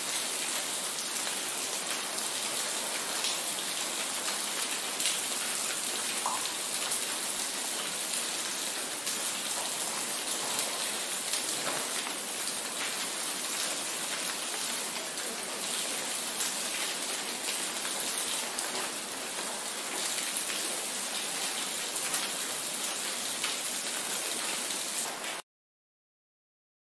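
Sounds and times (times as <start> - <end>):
steady rain hiss: 0.0 - 25.4
rain drop ticks: 6.2 - 6.5.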